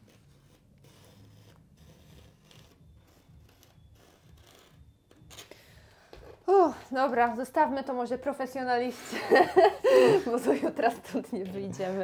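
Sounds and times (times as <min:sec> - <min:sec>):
marker pen writing on vinyl film: 0:00.0 - 0:05.5.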